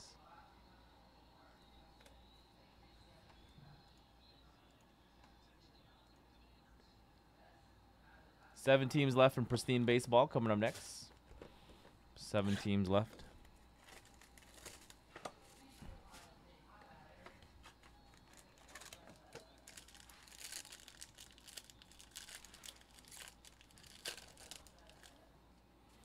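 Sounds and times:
foil wrapper crinkling and tearing: 13.8s - 15.0s, 17.8s - 25.2s.

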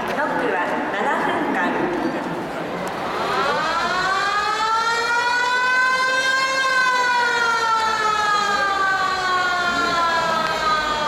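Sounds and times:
motor siren wailing: 3.1s - 11.0s.

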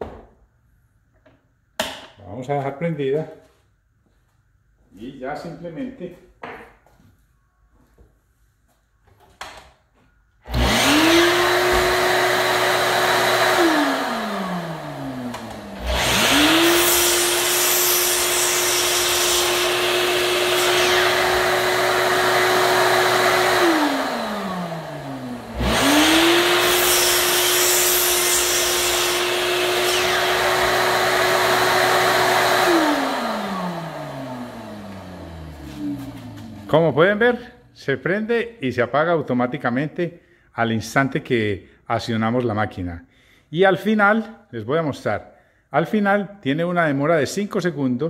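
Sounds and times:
shop vacuum running: 10.4s - 37.8s
miter saw motor whine: 10.5s - 36.7s.

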